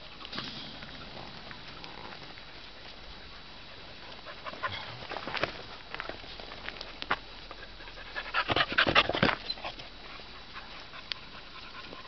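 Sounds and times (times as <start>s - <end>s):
dog panting: 2.6s - 5.2s, 7.6s - 12.0s.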